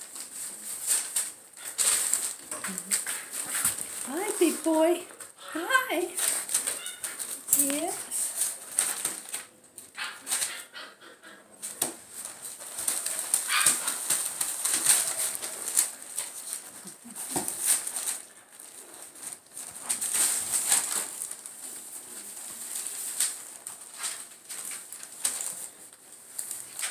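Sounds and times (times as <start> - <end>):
newspaper crinkling and rustling: 0.0 - 5.2, 6.1 - 10.6, 11.6 - 26.9
puppy scrabbling: 0.4 - 21.4.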